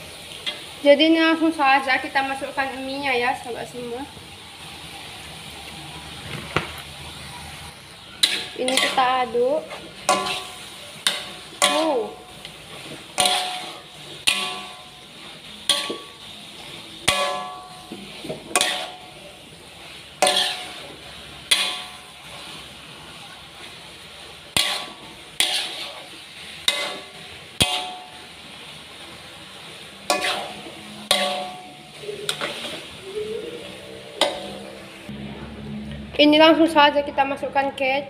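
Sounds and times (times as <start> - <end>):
hot oil sizzling: 0.0 - 38.0
metal spatula clanging on wok: 8.2 - 12.5, 13.1 - 16.2, 17.0 - 19.2, 20.2 - 22.2, 24.5 - 26.0, 26.6 - 28.2, 30.0 - 32.8, 34.1 - 34.8.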